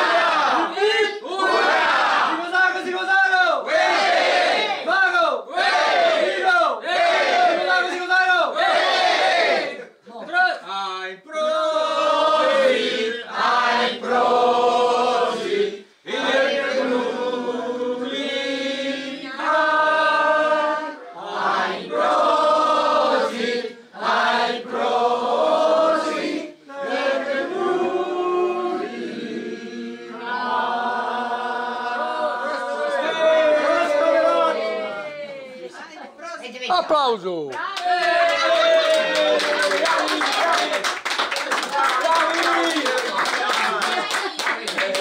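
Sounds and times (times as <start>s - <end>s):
group singing together: 0.0s - 2.4s, 3.7s - 10.0s, 11.2s - 35.0s, 43.2s - 45.0s.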